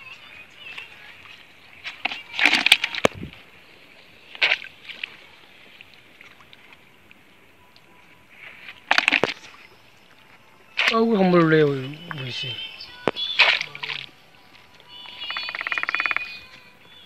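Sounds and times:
water splashing in basin: 1.9s - 3.2s, 8.8s - 9.7s, 13.1s - 14.2s.

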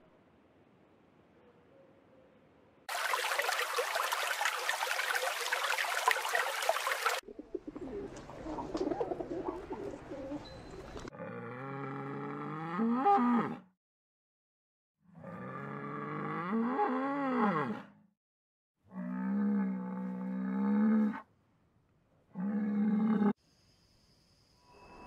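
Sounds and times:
pigeons cooing: 6.8s - 11.1s
bull bellowing moo: 11.1s - 13.7s, 15.2s - 17.9s, 18.9s - 21.2s, 22.4s - 23.3s.

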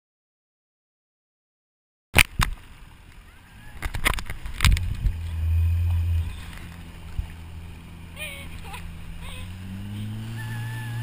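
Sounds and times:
boat engine humming: 2.6s - 11.0s.

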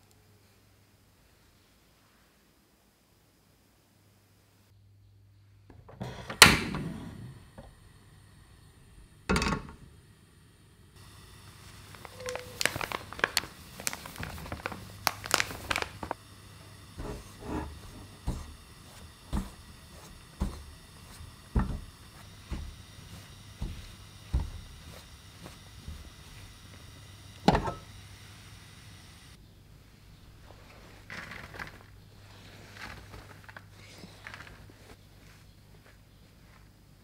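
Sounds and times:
low steady hum: 0.0s - 37.0s
corn starch rustling into pan: 11.0s - 29.4s, 30.4s - 37.0s
spatula stirring in pan: 16.2s - 29.3s.

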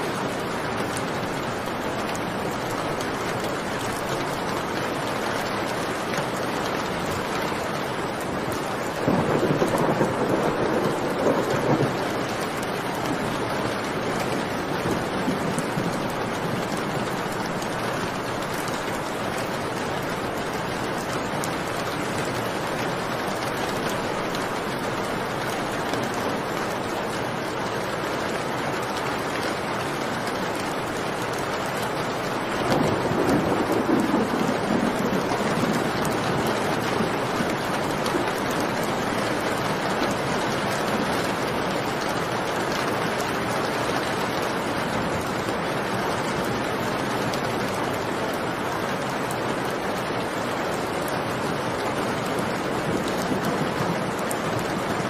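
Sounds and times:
heavy rain: 0.0s - 55.0s
thunder rumbling: 8.8s - 17.8s, 32.2s - 41.2s, 51.6s - 55.0s.

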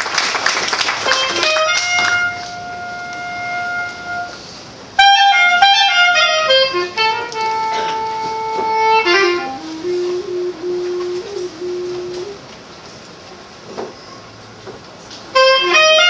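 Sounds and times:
solo clarinet melody: 1.1s - 12.6s, 15.3s - 16.0s.

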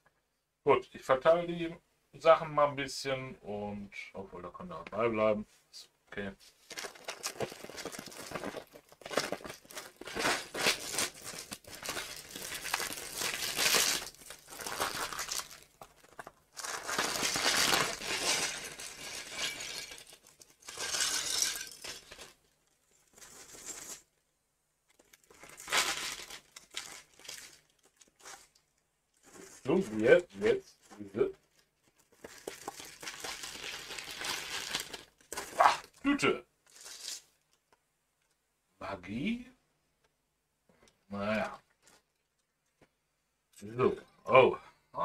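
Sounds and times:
plastic bag crinkling and tearing: 6.6s - 24.1s, 24.9s - 30.0s, 30.8s - 36.0s, 36.7s - 37.4s.

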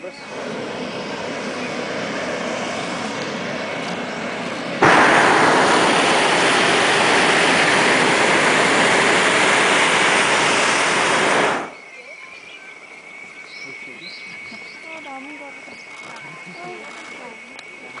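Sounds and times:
propane burner roaring: 0.0s - 11.8s.

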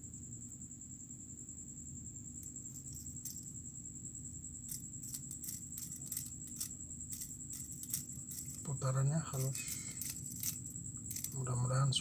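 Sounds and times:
steady high-pitched whine: 0.0s - 12.0s
lure tail clicking: 4.6s - 8.6s, 9.4s - 11.4s.

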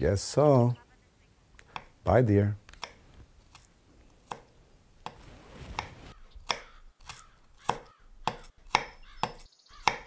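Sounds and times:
knife chopping on wooden board: 4.2s - 5.2s, 5.8s - 10.0s.

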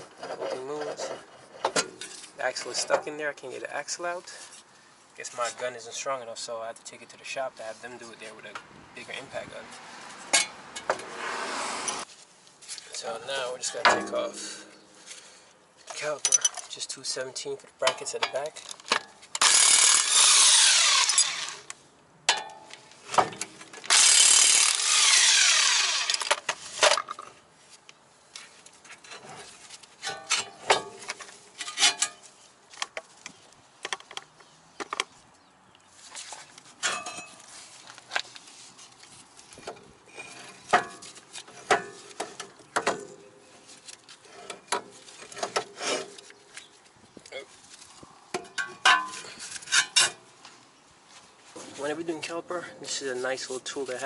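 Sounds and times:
metal clinks and clanks: 16.2s - 16.7s
impact wrench running: 19.4s - 21.6s, 23.9s - 26.3s.

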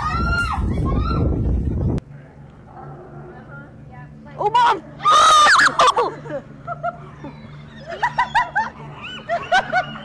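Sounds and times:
women laughing: 5.1s - 10.0s.

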